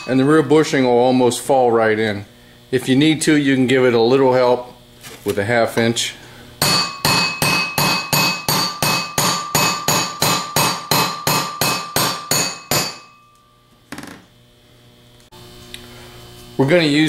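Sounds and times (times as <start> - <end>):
hammer tapping on metal: 6.6 - 13.4.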